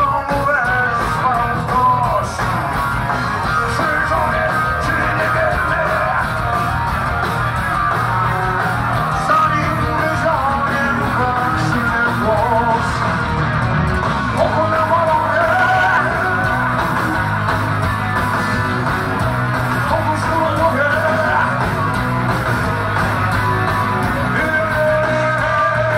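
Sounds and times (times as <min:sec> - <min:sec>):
live rock band playing: 0:00.0 - 0:25.9
person singing and shouting: 0:03.4 - 0:06.6, 0:14.3 - 0:16.7, 0:19.9 - 0:21.8, 0:24.1 - 0:25.9.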